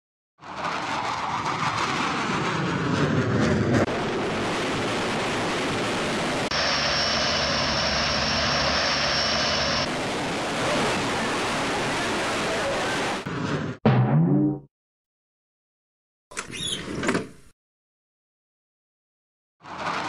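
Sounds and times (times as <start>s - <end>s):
jet aircraft roar: 0.4s - 13.3s
thin high whine: 6.6s - 9.9s.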